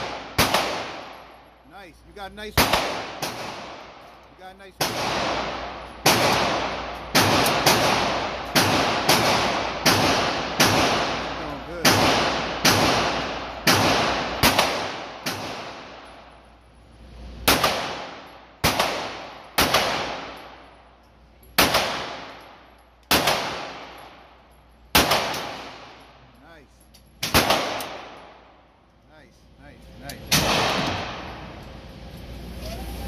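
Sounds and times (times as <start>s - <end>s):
pistol shots echoing indoors: 0.0s - 1.4s, 2.5s - 4.2s, 4.8s - 16.3s, 17.4s - 20.7s, 21.5s - 24.3s, 24.9s - 26.1s, 27.2s - 28.6s, 30.2s - 31.4s.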